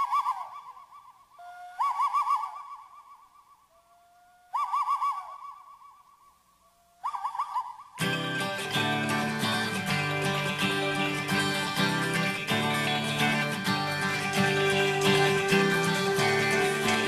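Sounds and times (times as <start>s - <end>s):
bird-like warbling call: 0.0s - 6.4s, 7.0s - 8.2s, 9.7s - 17.0s
guitar music: 8.0s - 17.0s.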